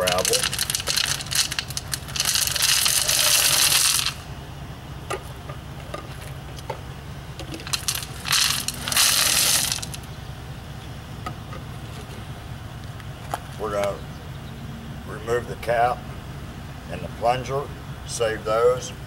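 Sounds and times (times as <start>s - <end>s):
gravel pouring into plastic tube: 0.0s - 4.2s, 7.6s - 10.0s
pebbles clicking: 0.0s - 4.2s, 7.4s - 10.1s.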